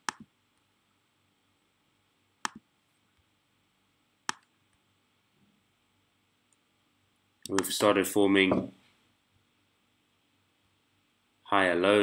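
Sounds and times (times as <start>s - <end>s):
computer mouse clicks: 0.0s - 0.3s, 2.4s - 2.6s, 4.3s - 4.6s.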